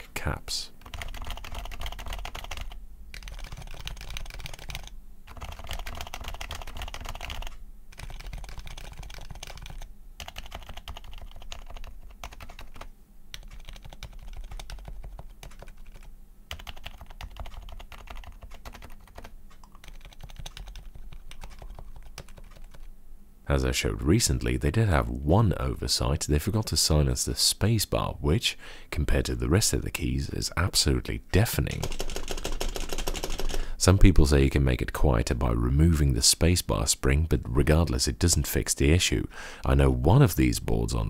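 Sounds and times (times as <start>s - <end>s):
fast typing on keyboard: 0.8s - 22.9s, 31.7s - 33.7s.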